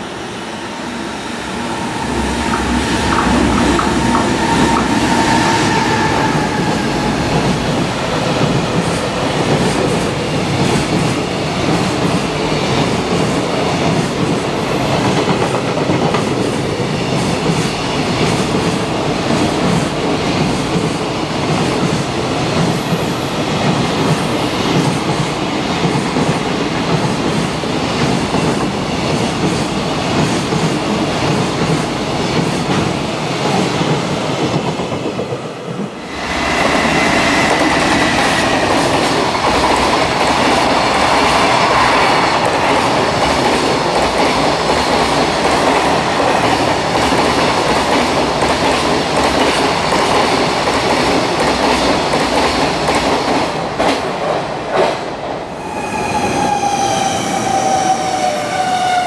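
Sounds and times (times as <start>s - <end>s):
electric locomotive whining: 0.0s - 11.0s, 30.9s - 49.9s, 55.4s - 59.0s.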